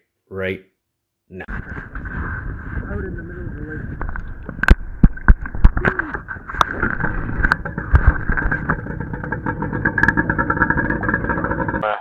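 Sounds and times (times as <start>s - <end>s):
sharp knocks and bumps: 4.0s - 11.8s
jet ski engine whine: 7.6s - 11.8s.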